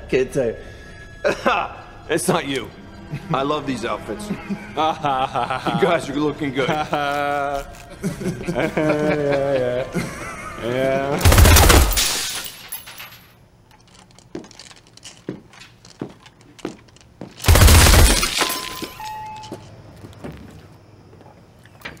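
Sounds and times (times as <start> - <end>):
glass shattering crash: 11.2 - 13.3, 17.4 - 19.3
broken glass clicking underfoot: 11.2 - 19.6
short chime tones: 18.5 - 19.6.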